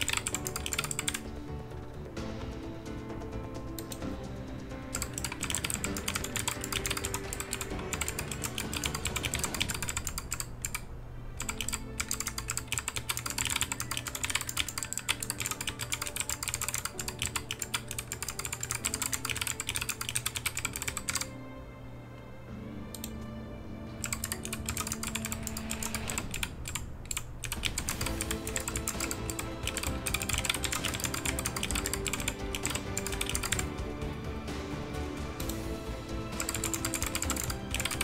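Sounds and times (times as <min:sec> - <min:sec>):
mechanical keypad keystrokes: 0:00.0 - 0:01.3, 0:04.9 - 0:21.3, 0:24.0 - 0:33.6
background music with held tones: 0:00.0 - 0:38.0.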